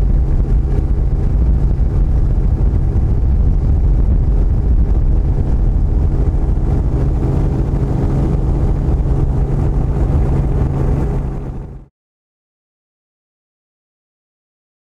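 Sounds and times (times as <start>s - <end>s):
engine drone: 0.0s - 11.9s.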